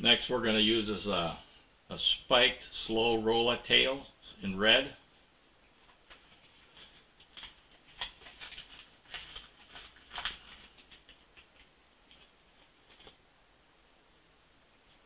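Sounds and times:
plastic bag crinkling: 5.9s - 13.2s.

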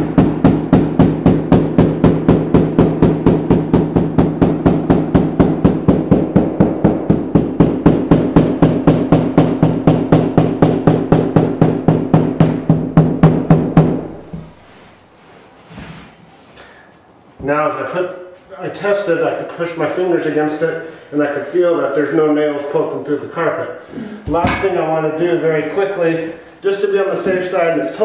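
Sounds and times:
hammer striking carpet edge: 0.0s - 14.6s.

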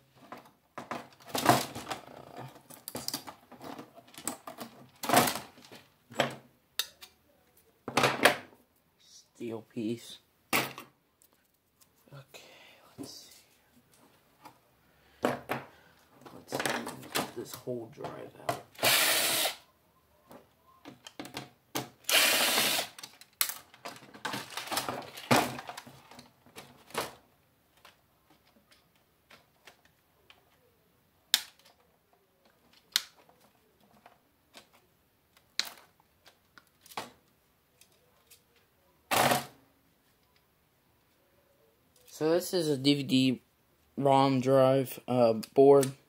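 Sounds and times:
cordless screw gun whirring: 18.8s - 19.6s, 22.0s - 23.0s
screws and parts clicking: 18.8s - 19.6s, 22.0s - 23.9s.

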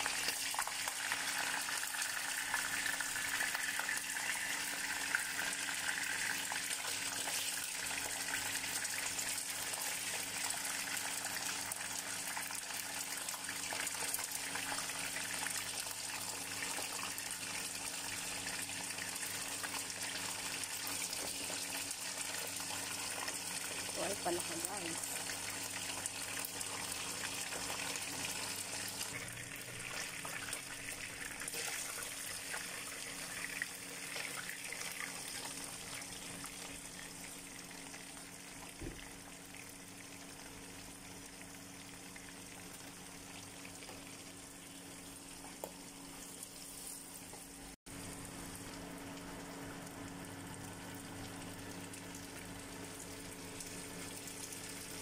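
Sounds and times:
food sizzling in hot oil: 0.0s - 55.0s.

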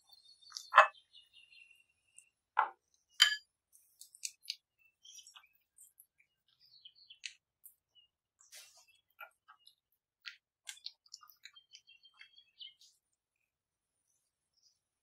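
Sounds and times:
spatula clinking against glass bowl: 3.2s - 3.5s.

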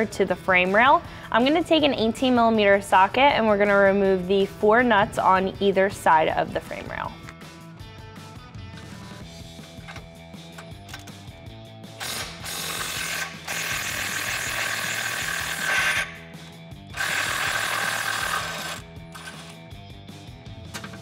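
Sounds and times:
cordless power wrench spinning nuts: 12.0s - 16.2s, 16.9s - 19.6s.

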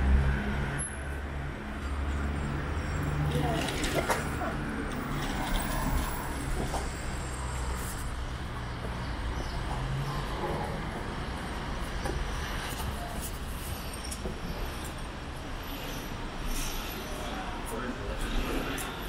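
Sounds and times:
low traffic rumble: 0.0s - 19.0s.

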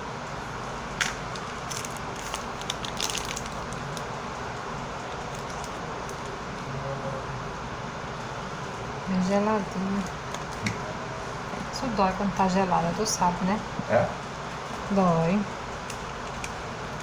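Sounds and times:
wrapper crinkling and tearing: 1.0s - 4.1s, 5.1s - 6.3s.

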